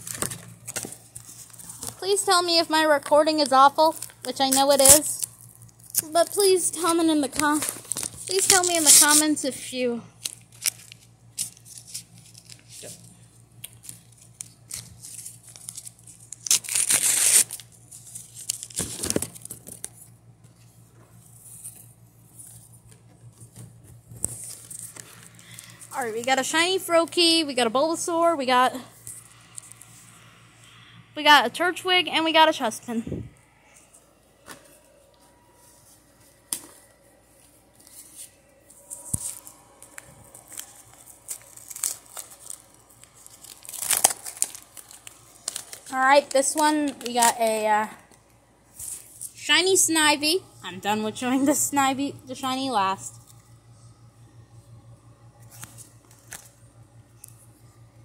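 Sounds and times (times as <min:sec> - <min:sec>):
wrapper crinkling: 0:03.3 - 0:09.4, 0:10.2 - 0:20.1, 0:37.8 - 0:49.4
paper pack tearing: 0:06.9 - 0:09.4, 0:10.2 - 0:13.0, 0:13.6 - 0:19.9, 0:38.9 - 0:47.8.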